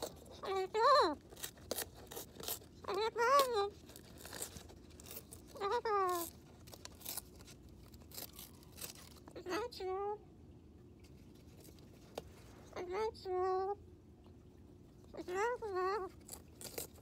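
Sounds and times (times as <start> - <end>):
cockatoo tearing cardboard: 0.0 - 9.4, 15.2 - 17.0.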